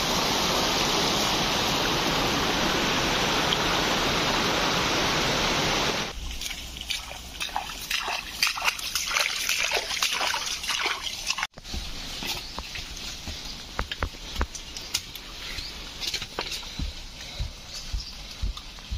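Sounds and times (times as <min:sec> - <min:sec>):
river water rushing: 0:00.0 - 0:11.5
footsteps through tall grass: 0:06.1 - 0:18.9.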